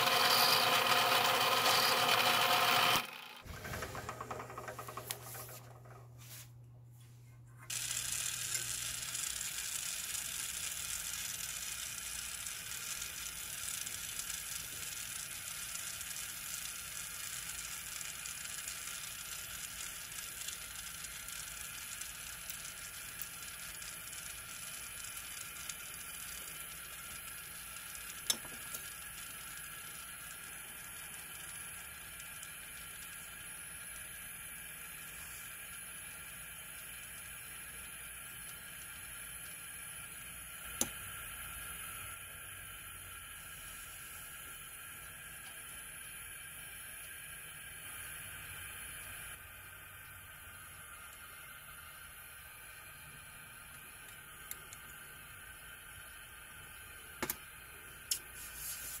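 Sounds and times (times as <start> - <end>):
drill press drilling metal: 0.0 - 5.2
gas torch flame hissing: 7.7 - 59.0.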